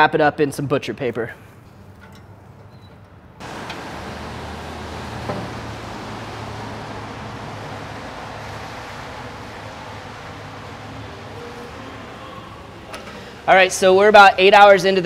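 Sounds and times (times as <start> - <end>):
steady rushing noise: 3.4 - 13.9.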